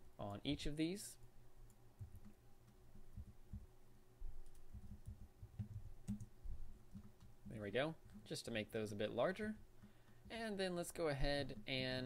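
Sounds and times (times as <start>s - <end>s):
keyboard tapping: 1.7s - 8.4s, 9.0s - 12.0s
mouse clicks: 4.4s - 6.3s.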